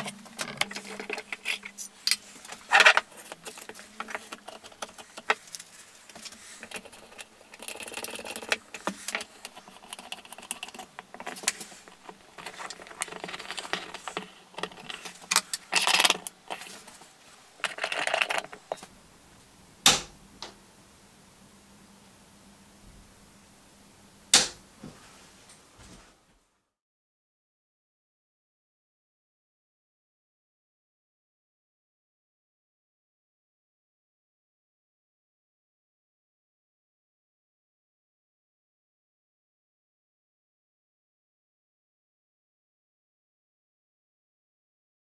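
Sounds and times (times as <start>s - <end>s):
small parts clicking and rattling: 0.0s - 18.9s.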